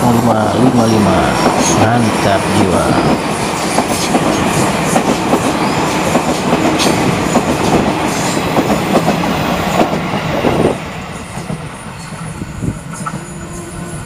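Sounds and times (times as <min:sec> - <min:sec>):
electric train passing: 0:00.0 - 0:14.0.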